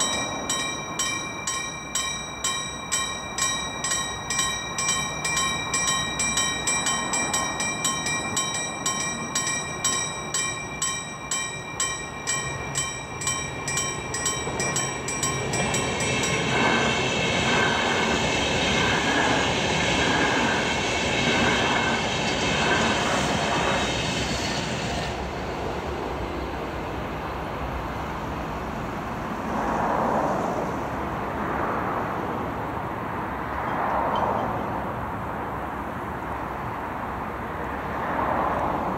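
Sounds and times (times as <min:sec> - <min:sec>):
level crossing bell ringing: 0:00.0 - 0:17.0
low train rumble: 0:00.0 - 0:38.9
train rolling past: 0:00.0 - 0:38.9.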